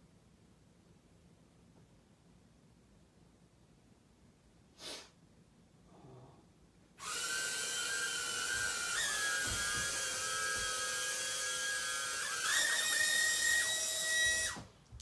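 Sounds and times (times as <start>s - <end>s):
small drone propellers whining: 7.0s - 14.6s.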